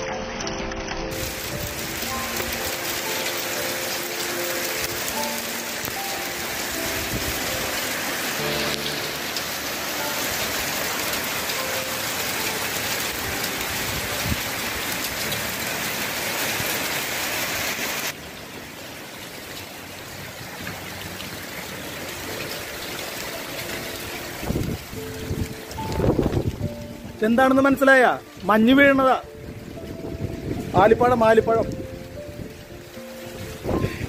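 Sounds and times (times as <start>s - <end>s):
hail clattering: 0.4s - 18.2s.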